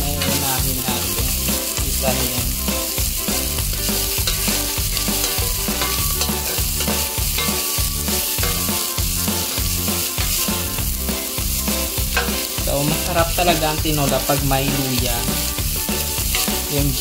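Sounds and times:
vegetables sizzling in fat: 0.0 - 17.0
stirring in a pot: 3.8 - 10.7.

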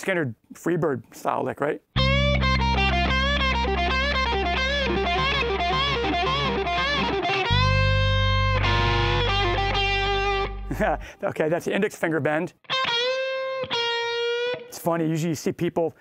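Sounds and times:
overdriven electric guitar lead: 2.0 - 11.1, 12.6 - 14.8.

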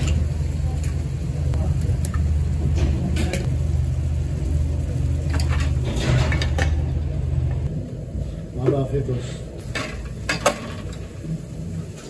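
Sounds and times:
low rumble: 0.2 - 8.6.

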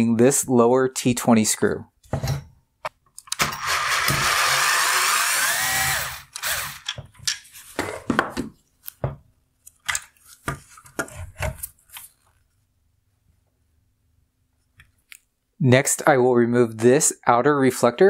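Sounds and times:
electric screwdriver running: 3.4 - 6.9
clicks and knocks of parts handled: 6.3 - 12.4.

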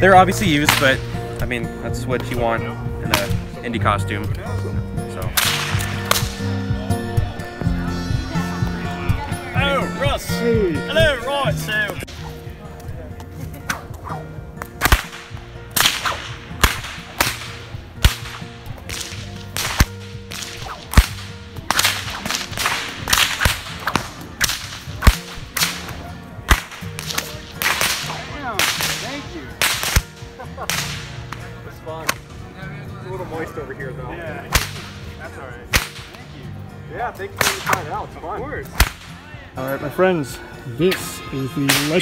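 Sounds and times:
bullwhip cracking: 0.7 - 1.0, 5.3 - 6.5, 13.6 - 32.2, 34.5 - 35.0, 35.7 - 36.2, 37.4 - 37.9, 38.7 - 39.1, 41.7 - 42.0
whip lash swishing: 5.4 - 6.4, 13.6 - 31.4, 34.5 - 34.9, 35.7 - 36.2, 37.4 - 37.9, 38.7 - 39.1.

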